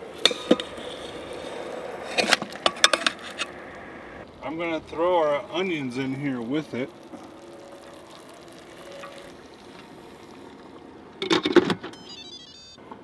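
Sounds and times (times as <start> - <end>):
electronic jingle of high beeps: 11.9 - 12.8.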